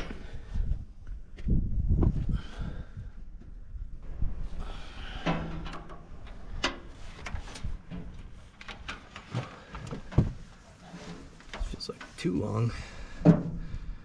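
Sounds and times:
plastic hose and metal handling: 5.2s - 13.6s.

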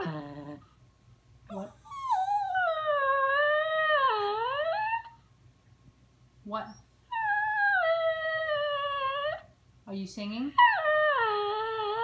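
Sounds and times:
small dog howling: 1.6s - 5.1s, 7.1s - 9.5s.

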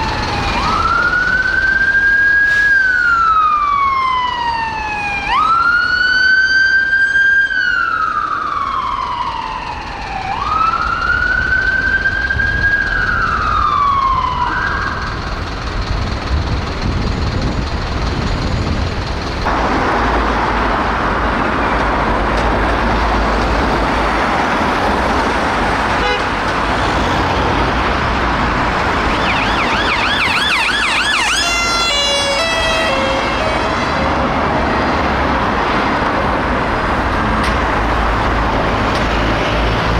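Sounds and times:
fast-warbling siren: 0.0s - 15.2s, 28.9s - 34.1s
siren wailing: 0.0s - 15.4s, 27.0s - 34.8s
passing vehicle rush: 15.1s - 39.9s.

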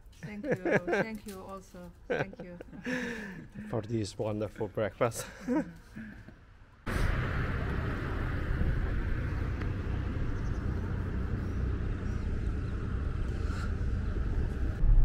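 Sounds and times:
steady low rumble: 6.9s - 15.0s.

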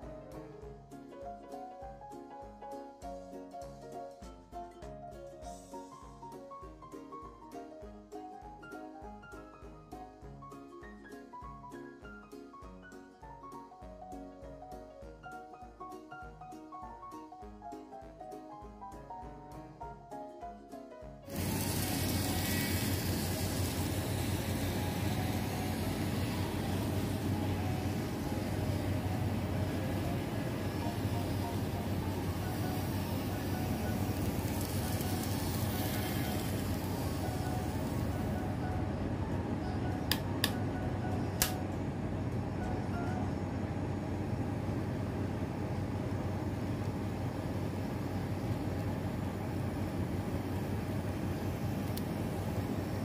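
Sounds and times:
model train whirring: 21.3s - 38.2s
steady low hum: 21.3s - 53.0s
sharp click: 41.4s - 41.6s.

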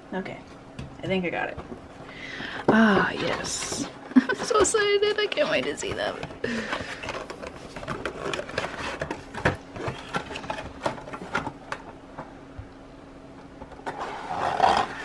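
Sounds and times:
faint steady hum: 0.0s - 15.0s
plastic and card crinkling: 2.9s - 11.9s.

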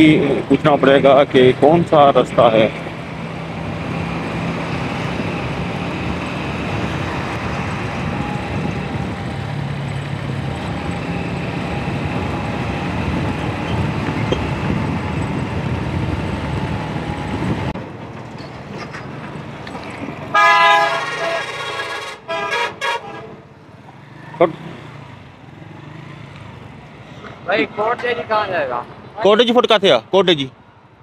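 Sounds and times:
road noise: 0.0s - 31.0s
wind noise: 3.4s - 20.4s.

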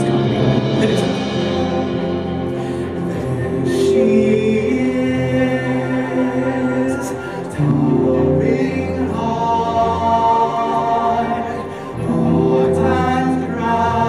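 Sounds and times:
choir singing held chords: 0.0s - 14.0s
orchestra playing: 0.0s - 14.0s.

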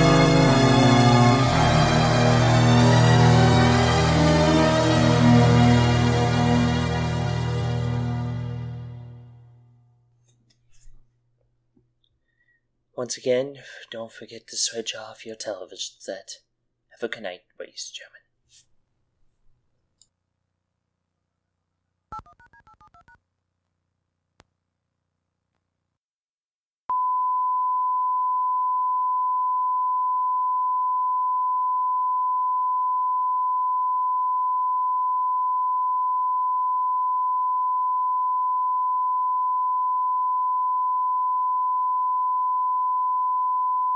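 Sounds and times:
steady single-pitch test tone: 26.9s - 43.9s.

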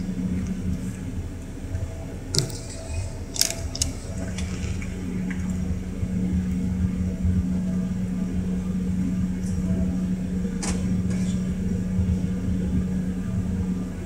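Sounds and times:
sharp clicks and rattles: 2.3s - 4.3s.

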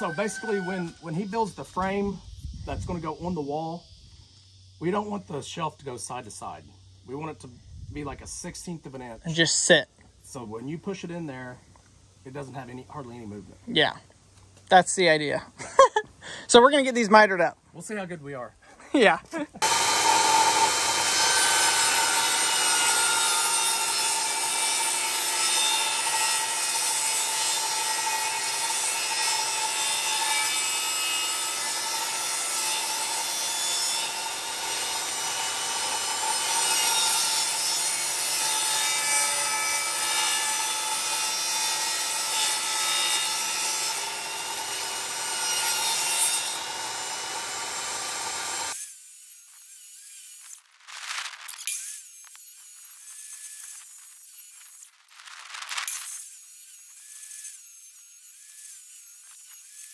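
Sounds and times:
table saw motor whining: 19.6s - 50.5s
saw blade cutting wood: 19.6s - 59.9s.

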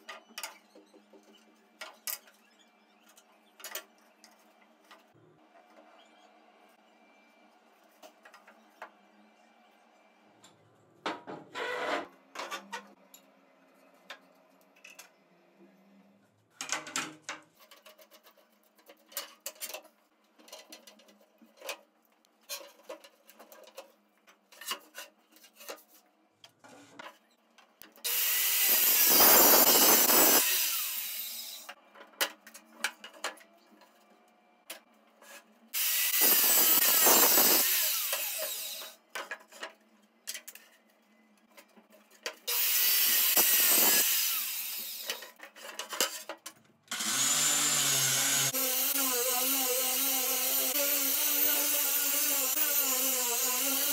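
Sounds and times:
circular saw cutting wood: 28.0s - 31.8s, 35.7s - 39.0s, 42.5s - 45.3s, 46.9s - 53.9s.

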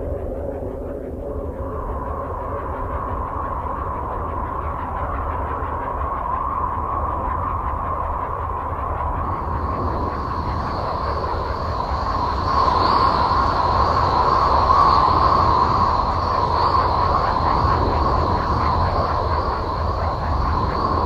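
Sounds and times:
rumbling hissing space drone: 0.0s - 21.0s
steady whistling tone: 0.0s - 21.0s.

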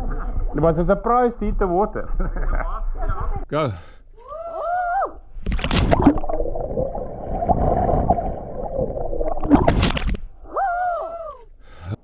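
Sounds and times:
sharp water splash: 5.4s - 10.4s
muffled underwater bubbles: 5.7s - 10.3s.

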